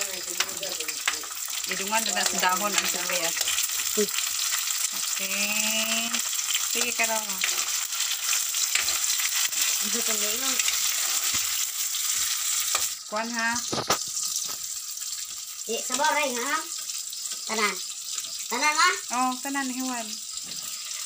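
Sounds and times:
tomatoes sizzling in wok: 0.0 - 21.0
metal spatula scraping pan: 6.4 - 12.9.

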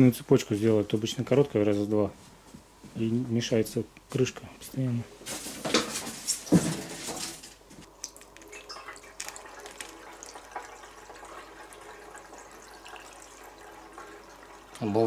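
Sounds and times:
petrol pouring into fuel tank: 8.4 - 14.8.

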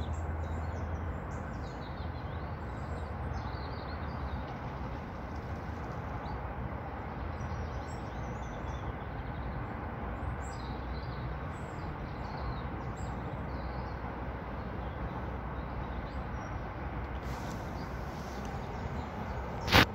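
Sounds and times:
small birds chirping: 0.0 - 6.5, 14.6 - 19.9
outdoor background rumble: 0.0 - 19.9.

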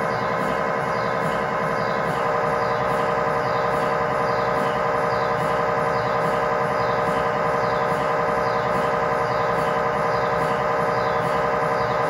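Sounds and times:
mri scanner buzzing: 0.0 - 12.0.

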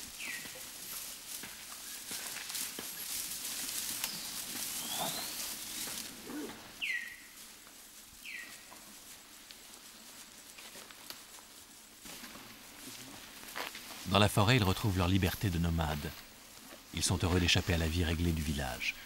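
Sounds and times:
footsteps through tall grass: 0.0 - 19.0
quiet forest ambience: 0.0 - 19.0
bird whistling: 4.1 - 7.3.

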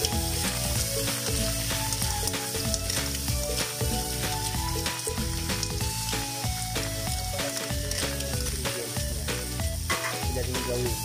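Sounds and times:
spatula stirring: 0.0 - 8.7
mussels sizzling in a wok: 0.0 - 11.0.

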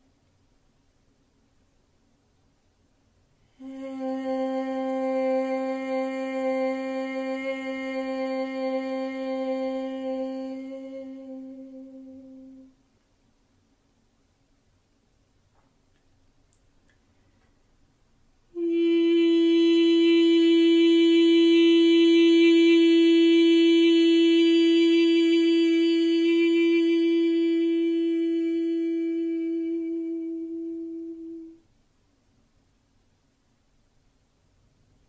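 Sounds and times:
woman toning a long held note: 3.5 - 12.8, 18.6 - 31.6.

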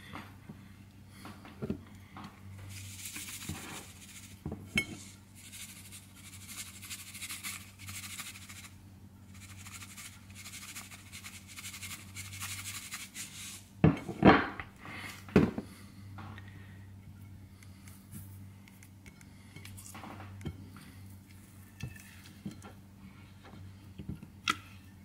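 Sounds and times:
seasoning shaker rattling: 2.7 - 13.7.

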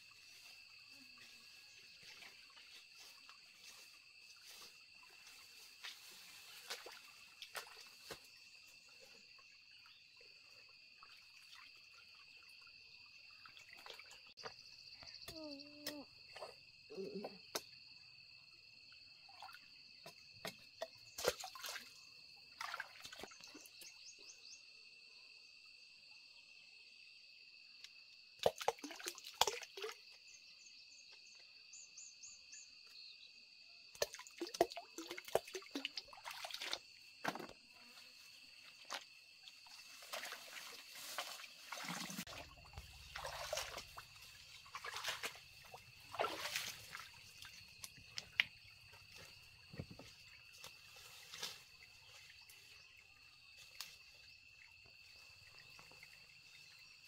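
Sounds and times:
leaves and twigs rustling: 0.0 - 8.9, 37.8 - 54.2
high insect drone: 0.0 - 13.7, 36.9 - 57.0.

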